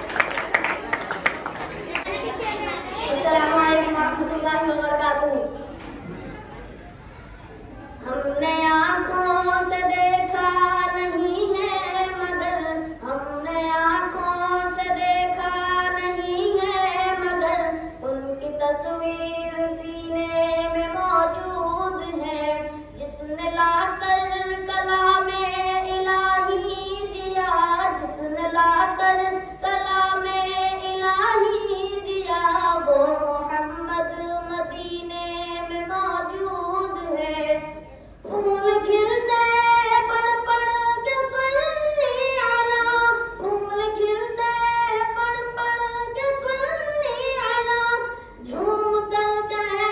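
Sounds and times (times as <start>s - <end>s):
boy singing devotional song: 2.3s - 6.2s, 8.0s - 49.9s.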